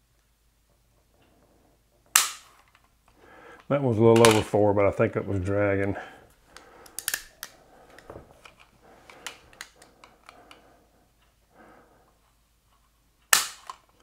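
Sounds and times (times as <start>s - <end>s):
pistol hammer snapping: 2.2s - 2.5s, 6.6s - 7.6s, 13.3s - 13.8s
pistol clicks and scrapes: 6.6s - 10.6s.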